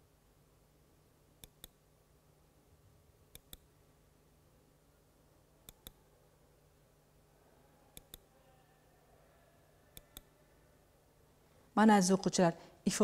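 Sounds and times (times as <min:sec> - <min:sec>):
faint low hum: 0:00.0 - 0:13.0
soft sharp clicks: 0:01.4 - 0:01.8, 0:03.3 - 0:03.7, 0:05.7 - 0:06.0, 0:08.0 - 0:08.3, 0:10.0 - 0:10.3.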